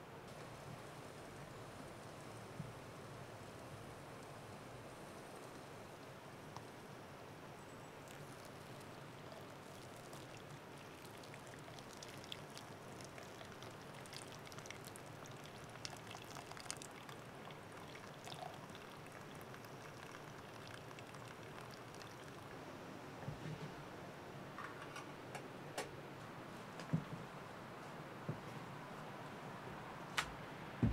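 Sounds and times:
hot water trickling from kettle: 0:08.0 - 0:22.6
small drips and ticks: 0:08.0 - 0:22.6.

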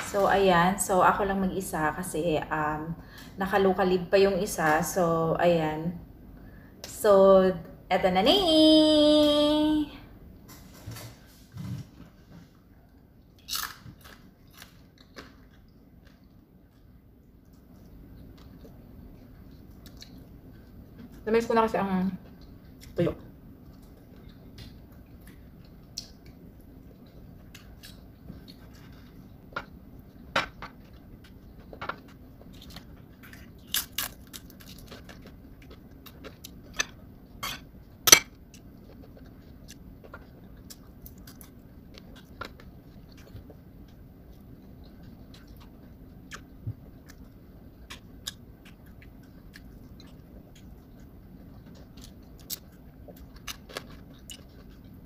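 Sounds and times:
faint low hum: 0:00.0 - 0:55.0
chewing: 0:12.9 - 0:21.2, 0:22.1 - 0:55.0.

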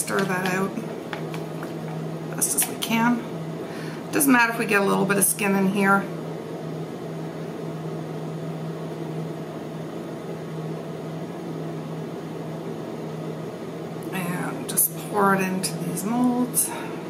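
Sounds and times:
household appliance humming: 0:00.0 - 0:04.2.

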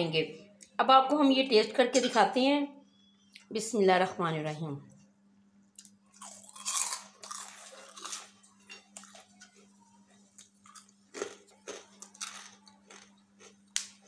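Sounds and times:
crunchy snack being chewed: 0:05.8 - 0:14.0.

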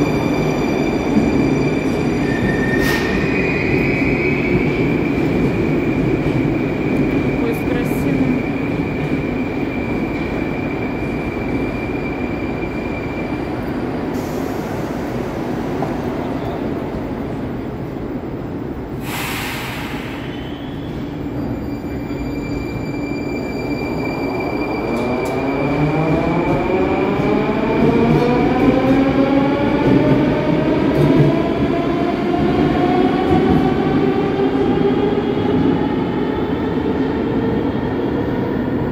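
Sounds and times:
train wheels rumbling on rails: 0:00.0 - 0:38.9
short air hiss: 0:19.0 - 0:20.4.

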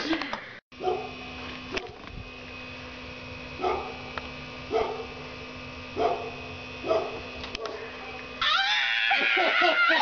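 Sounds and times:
steady electrical hum: 0:00.0 - 0:10.0
dog barking: 0:00.8 - 0:01.2, 0:03.6 - 0:04.0, 0:04.7 - 0:05.1, 0:06.0 - 0:07.8.

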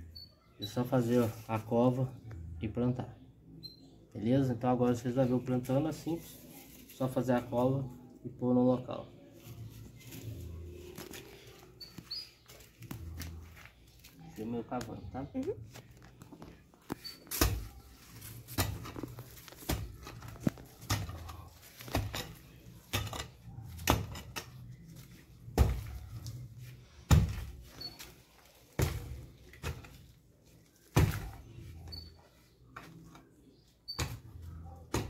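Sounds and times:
hoe thudding into soil: 0:27.1 - 0:27.6.

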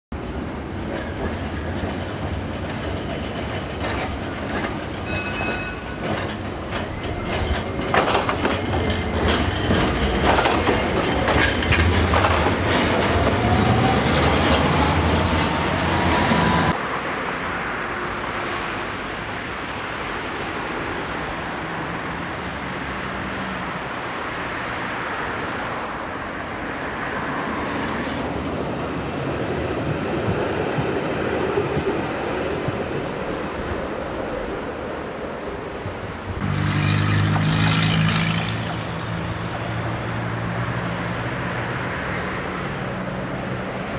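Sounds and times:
tram rumble: 0:00.1 - 0:43.9
tram wheels clicking over rail joints: 0:00.2 - 0:16.8, 0:27.7 - 0:33.9
tram whine rising in pitch: 0:04.4 - 0:17.0.

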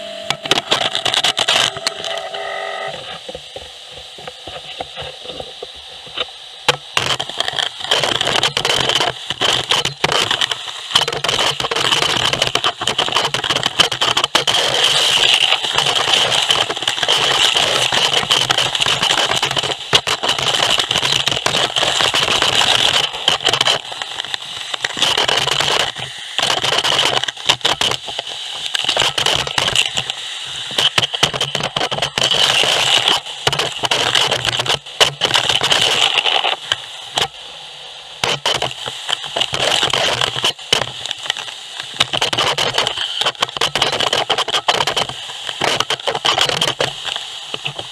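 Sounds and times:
vacuum air rush: 0:00.0 - 0:08.0, 0:28.0 - 0:35.0, 0:35.7 - 0:42.0.

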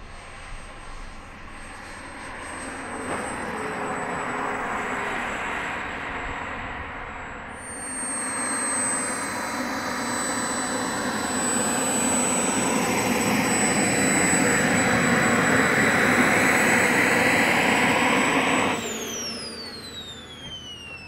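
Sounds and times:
small turbine engine whine: 0:00.0 - 0:21.0.

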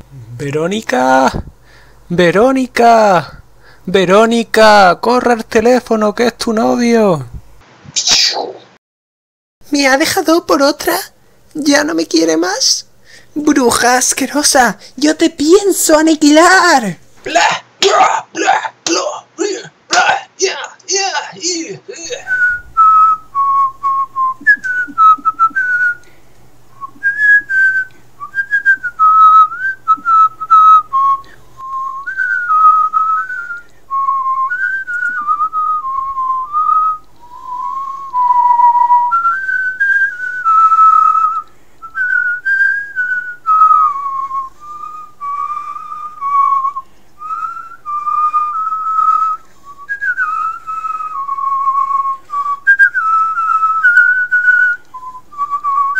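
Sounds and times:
person whistling a tune: 0:22.1 - 0:26.1, 0:26.8 - 0:55.9.

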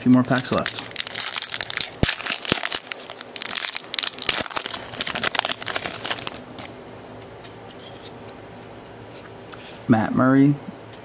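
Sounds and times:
plastic wrapper tearing and crinkling: 0:00.0 - 0:06.8.

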